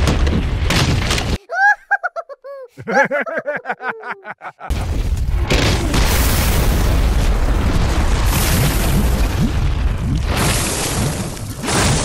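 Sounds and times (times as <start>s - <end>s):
rumbling explosion: 4.7s - 12.0s.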